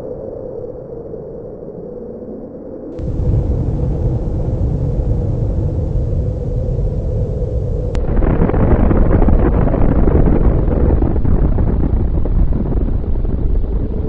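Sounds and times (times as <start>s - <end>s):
deep explosion rumble: 3.0s - 14.0s.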